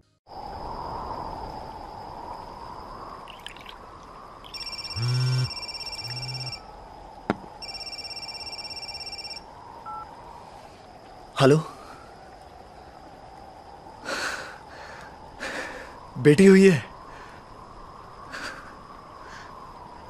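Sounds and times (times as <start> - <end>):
background hiss: 0.3 - 20.0
thin high tone: 4.4 - 6.6, 7.6 - 9.4
phone ringtone pulsing: 4.5 - 6.6, 7.6 - 10.0.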